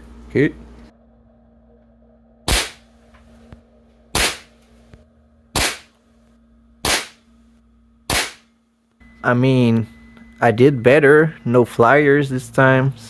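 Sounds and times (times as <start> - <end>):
air rifle shots popping: 5.6 - 5.9.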